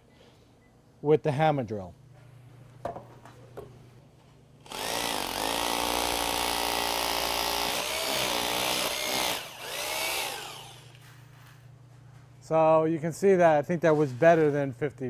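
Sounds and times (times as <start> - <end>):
hammer drill boring into concrete: 4.7 - 11.0.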